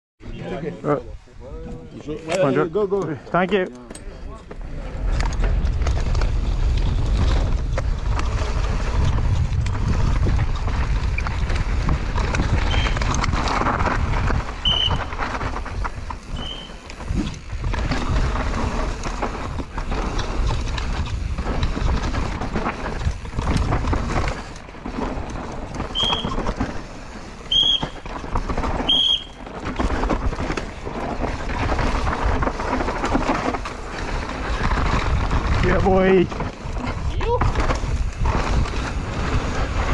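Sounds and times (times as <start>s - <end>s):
bike tyres rattling on rough ground: 0.4s - 39.9s
wind buffeting microphone: 4.8s - 39.9s
short high squeals: 16.4s - 16.8s.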